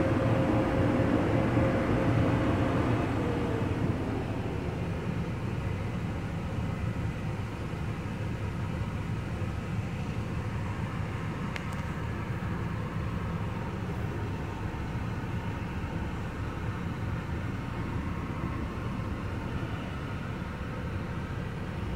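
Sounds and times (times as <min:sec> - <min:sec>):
diesel truck engine rumbling: 0:00.0 - 0:21.9
faint click: 0:11.5 - 0:12.0.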